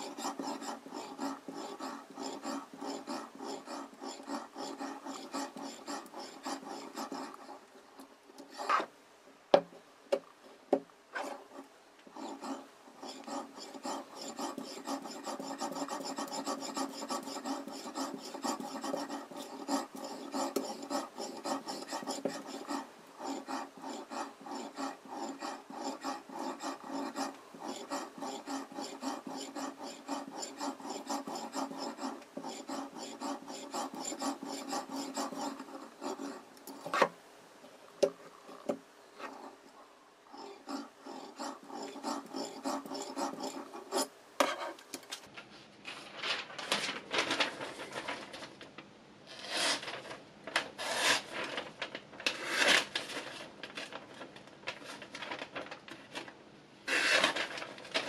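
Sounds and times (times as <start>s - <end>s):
whetstone scraping knife edge: 0.0s - 7.6s, 12.2s - 36.9s, 40.4s - 44.8s.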